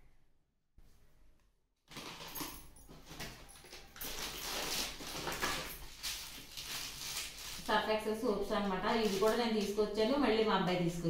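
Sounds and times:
plastic packaging rustling: 1.9 - 10.2.

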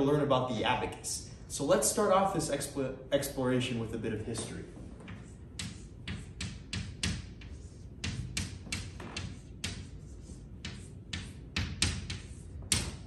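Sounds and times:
chalk tapping and scraping: 4.3 - 13.0.

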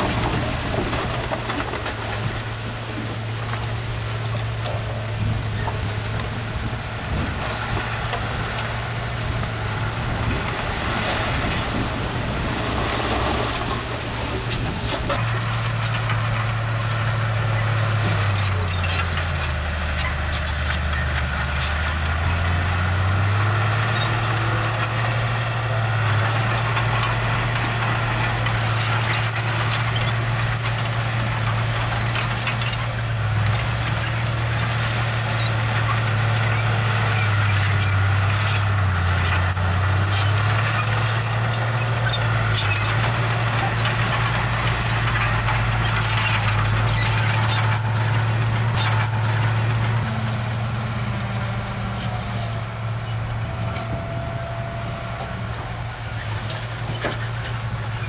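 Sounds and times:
diesel engine under load: 0.0 - 58.0
small clicks and squeaks: 14.4 - 50.1.

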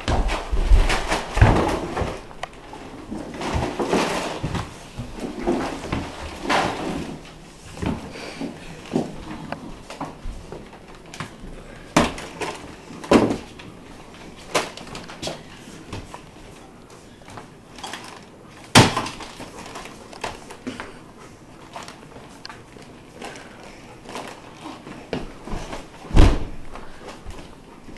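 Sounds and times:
objects knocking and thudding: 0.0 - 13.6, 24.1 - 27.5
rustling handling noise: 12.1 - 27.9.

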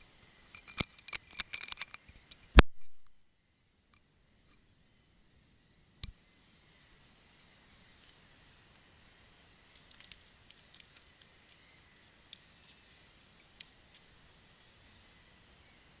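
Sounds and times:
faint steady hiss: 0.0 - 16.0
fishing tackle clinking: 9.5 - 12.8.

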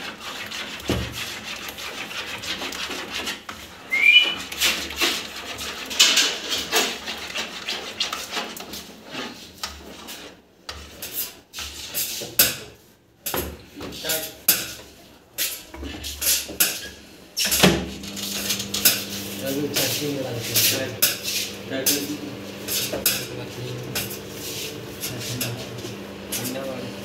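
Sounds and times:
rising high-pitched chirp: 3.9 - 4.4
rubbing noise: 24.0 - 25.9.

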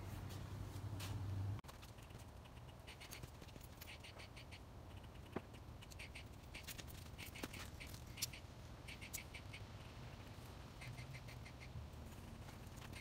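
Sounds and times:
high ticks and chirps: 2.0 - 11.8.

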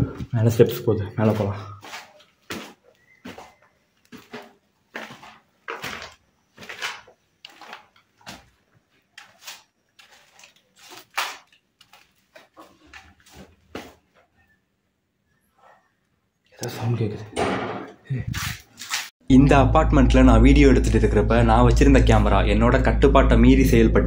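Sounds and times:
footsteps crunching on concrete stairs: 1.2 - 11.0.

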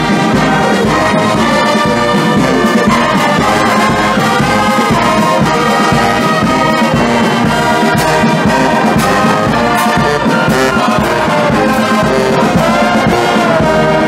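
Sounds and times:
bass drum beat: 0.0 - 14.0
brass band chords: 0.0 - 14.0.

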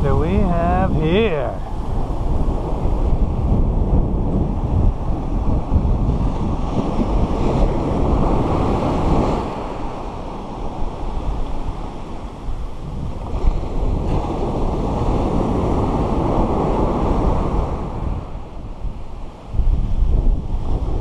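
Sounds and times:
ocean waves breaking: 0.0 - 21.0
wind buffeting microphone: 0.0 - 21.0.

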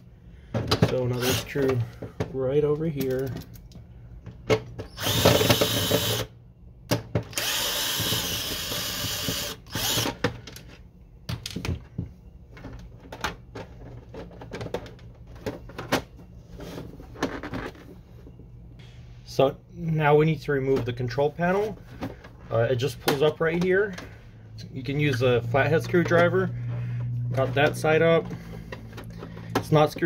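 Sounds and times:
cordless drill running: 1.2 - 1.5, 5.0 - 6.3, 7.4 - 10.2
plastic parts clicking and knocking: 11.3 - 16.2.

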